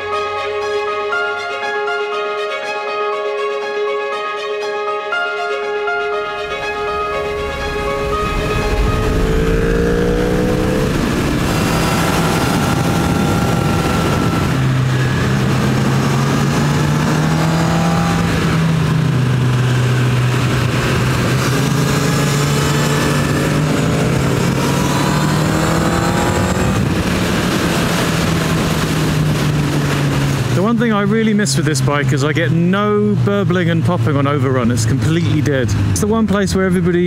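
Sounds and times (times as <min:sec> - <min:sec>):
wind rushing: 0:06.3 - 0:30.5
motorcycle engine revving: 0:07.3 - 0:34.1.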